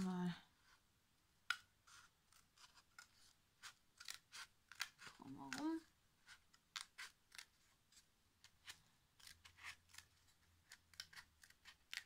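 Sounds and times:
scissors snipping cardboard: 1.5 - 7.6, 8.6 - 12.0.

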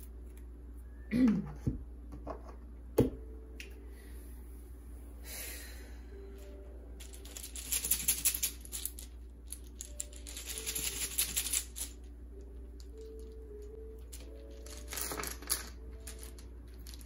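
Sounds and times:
faint background music: 2.4 - 17.0
tiles rattling in cloth bag: 7.0 - 12.0, 14.0 - 17.0.

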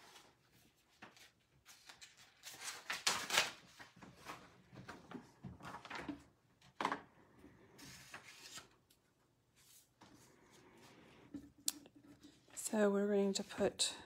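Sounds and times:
paper rustling and sliding: 0.0 - 6.0, 7.7 - 8.8.

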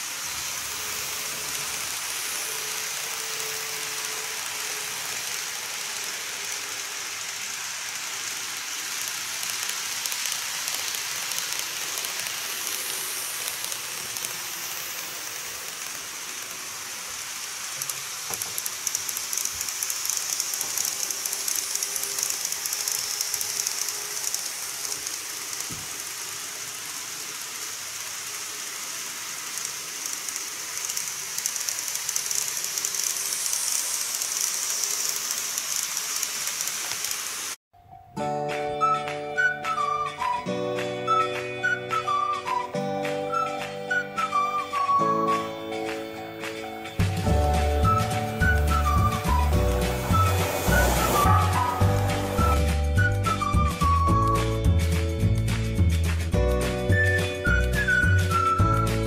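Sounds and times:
model train wheels and motors hissing: 0.0 - 37.6, 38.8 - 59.0
rapid clicking: 3.0 - 37.6.

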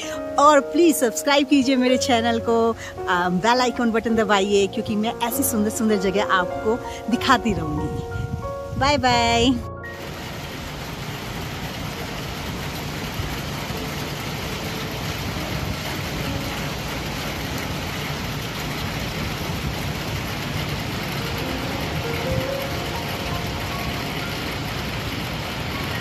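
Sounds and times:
car engine running: 10.0 - 26.0.

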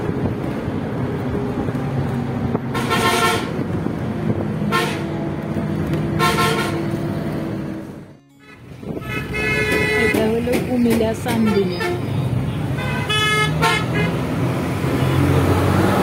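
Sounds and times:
bus engine and road noise: 0.0 - 16.0
vehicle horn honking: 2.8 - 3.5, 4.7 - 5.1, 6.2 - 6.8, 8.2 - 10.3, 12.7 - 14.2.

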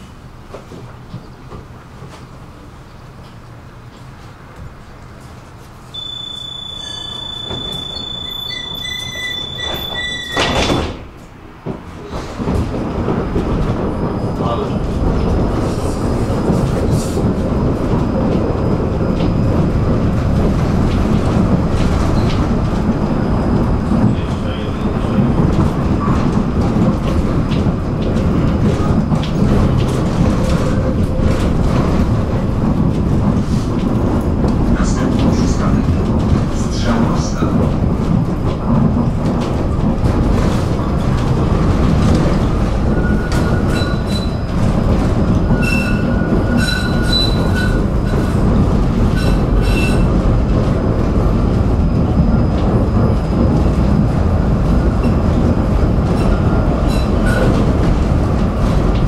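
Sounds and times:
tram running noise: 0.0 - 59.0
steady high warning tone: 5.9 - 10.5
pulsing beep: 6.0 - 10.4
sliding doors shutting: 6.2 - 13.2.

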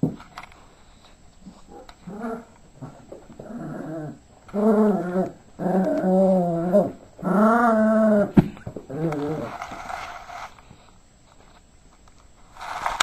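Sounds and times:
dog play growling: 1.4 - 10.1.

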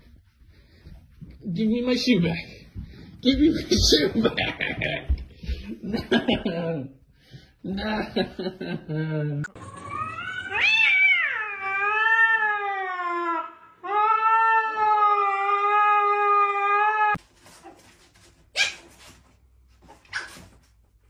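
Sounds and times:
cat yowling: 9.8 - 17.2.

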